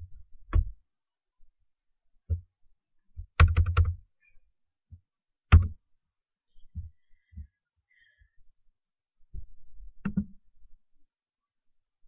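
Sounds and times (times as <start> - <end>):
keyboard keys tapping: 3.2 - 4.0.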